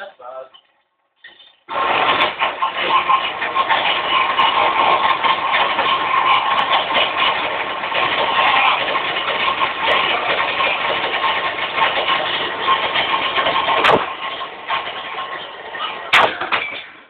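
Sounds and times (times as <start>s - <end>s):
vacuum cleaner running: 1.7s - 5.0s.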